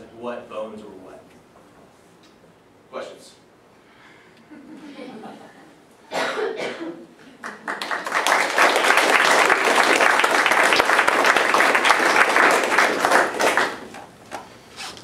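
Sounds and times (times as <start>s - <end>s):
audience applauding: 7.4s - 14.1s.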